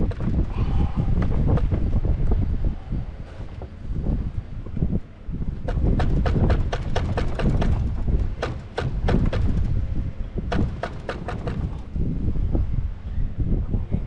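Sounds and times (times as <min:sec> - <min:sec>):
wind rumble on microphone: 0:00.0 - 0:14.0
rapid sharp clicks: 0:05.7 - 0:09.7, 0:10.5 - 0:11.9.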